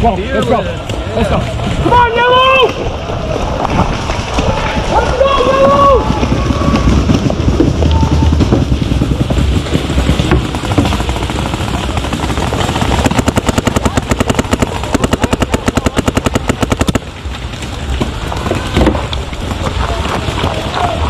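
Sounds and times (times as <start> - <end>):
paintball marker rapid firing: 6.9 - 17.2.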